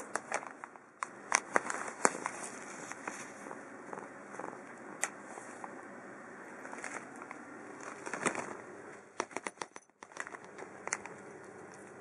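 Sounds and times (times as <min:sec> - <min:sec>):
plastic pouch rustling: 0:06.6 - 0:08.6.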